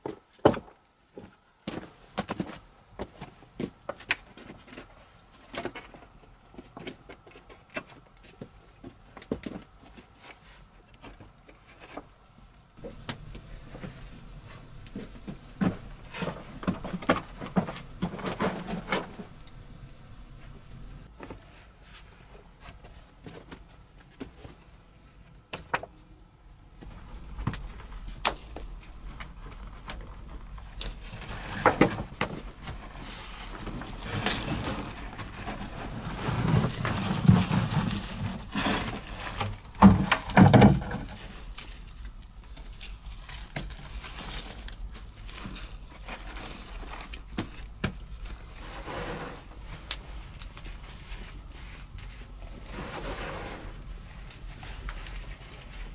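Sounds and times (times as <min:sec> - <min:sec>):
wood knocking and scraping: 0:12.8 - 0:21.5, 0:26.8 - 0:41.3.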